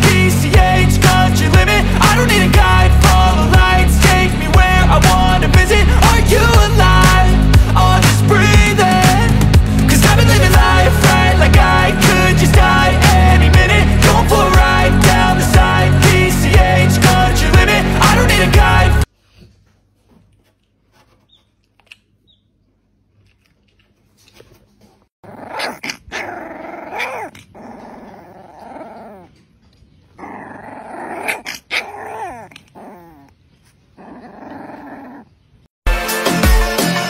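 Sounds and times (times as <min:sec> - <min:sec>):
puppy play-growling: 0:25.2 - 0:35.4.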